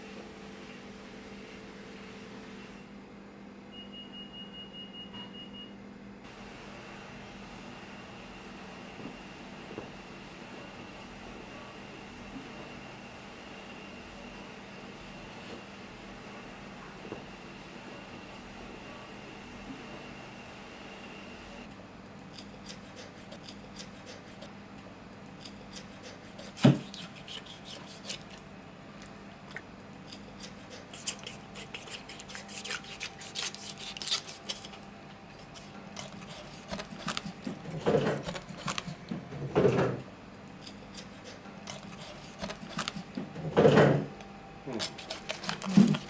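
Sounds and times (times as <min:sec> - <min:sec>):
knife cutting and scraping skin: 0:22.3 - 0:24.5, 0:25.4 - 0:28.5, 0:30.0 - 0:39.1, 0:40.6 - 0:43.1, 0:44.8 - 0:46.0
handling noises: 0:44.8 - 0:46.0.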